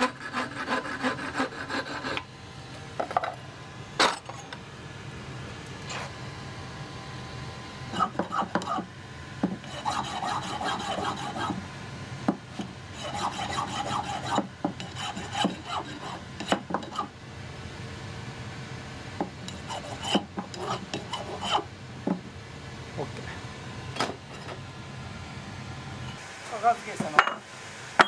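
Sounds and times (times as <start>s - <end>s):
hand file rasping on metal: 0.0s - 2.2s, 7.9s - 8.9s, 9.6s - 11.6s, 12.6s - 17.1s, 19.5s - 21.7s.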